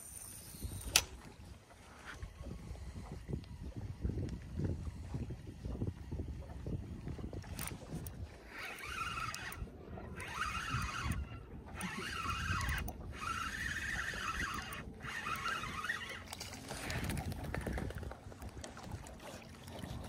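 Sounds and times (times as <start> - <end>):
fishing reel whirring: 0.0 - 18.5
low wind rumble on microphone: 0.4 - 20.0.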